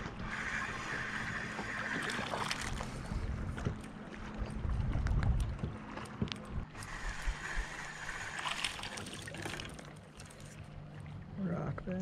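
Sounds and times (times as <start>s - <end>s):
water lapping against kayak hull: 0.0s - 11.9s
wind rumble on microphone: 2.6s - 8.4s.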